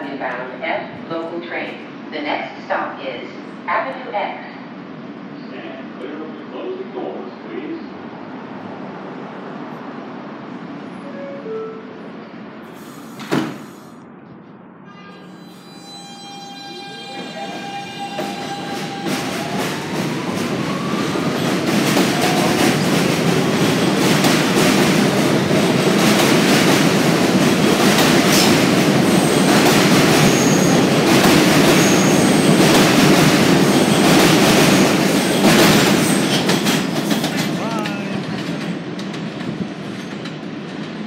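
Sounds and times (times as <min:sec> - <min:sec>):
high wheel squeals: 0:14.9 - 0:19.2
clickety-clack over rail joints: 0:18.2 - 0:41.0.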